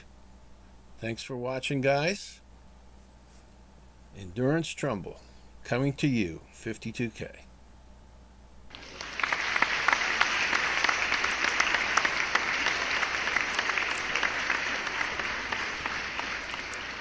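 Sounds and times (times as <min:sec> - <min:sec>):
crowd clapping: 0:08.7 - 0:17.0.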